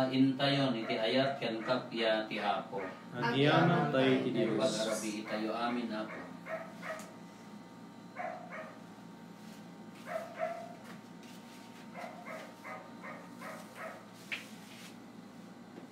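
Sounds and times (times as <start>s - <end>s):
small dog yapping: 10.1s - 10.8s.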